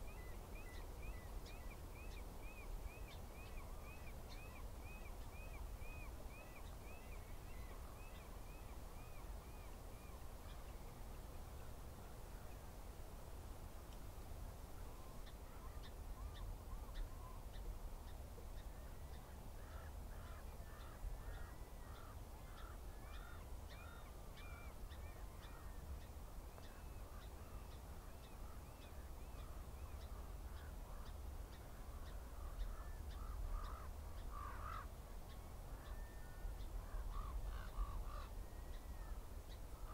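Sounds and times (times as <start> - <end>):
repeated bird calls: 26.7 - 39.9.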